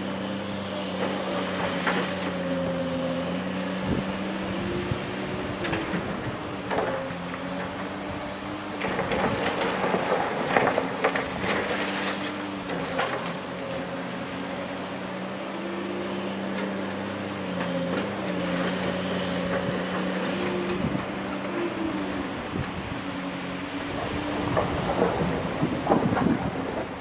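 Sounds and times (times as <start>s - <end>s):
excavator diesel engine running: 0.0s - 27.0s
rock and gravel clattering: 5.5s - 14.0s, 23.8s - 27.0s.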